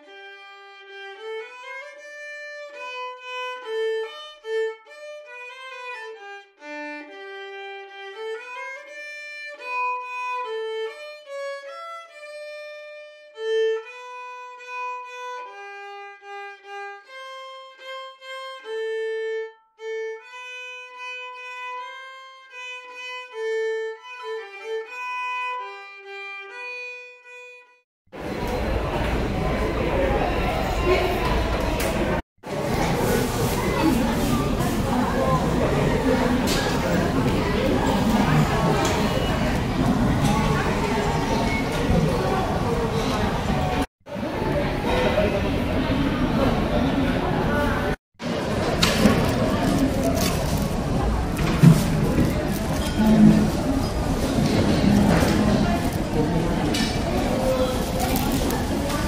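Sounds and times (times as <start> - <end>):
solo violin melody: 0.0 - 27.8
busy indoor crowd noise: 0.1 - 11.6, 28.1 - 59.0.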